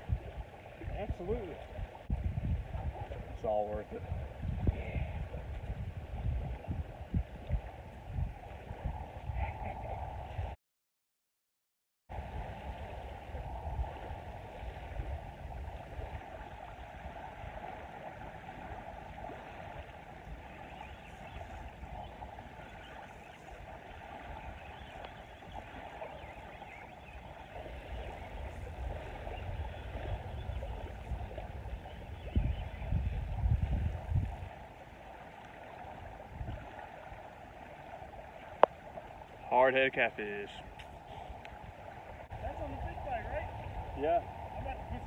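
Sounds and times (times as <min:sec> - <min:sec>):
small waves washing on sand: 0:00.0 - 0:10.4, 0:12.1 - 0:45.0
wind rumbling on microphone: 0:00.0 - 0:10.6, 0:12.1 - 0:45.0.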